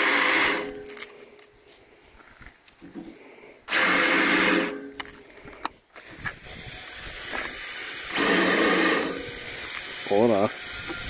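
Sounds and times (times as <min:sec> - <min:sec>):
cordless drill running: 0:00.0 - 0:00.7, 0:03.7 - 0:04.8, 0:06.4 - 0:11.0.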